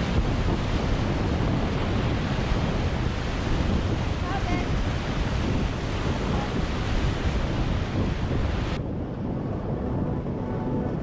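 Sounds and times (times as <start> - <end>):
wind buffeting microphone: 0.0 - 11.0
soft background music: 9.5 - 11.0.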